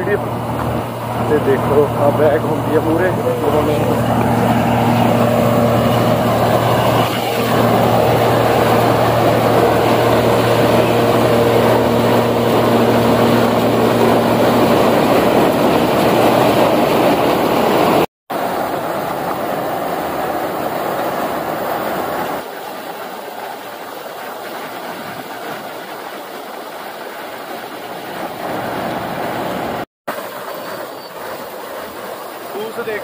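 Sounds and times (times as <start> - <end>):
combine harvester engine and threshing: 0.0 - 22.5.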